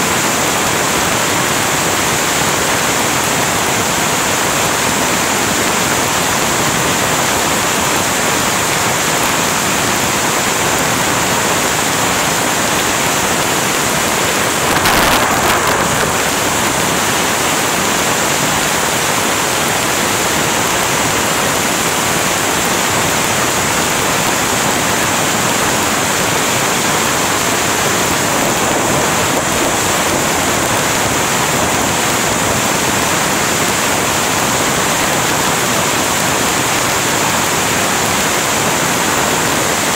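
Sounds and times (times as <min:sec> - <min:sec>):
heavy rain: 0:00.0 - 0:39.9
sharp crack: 0:11.8 - 0:18.0.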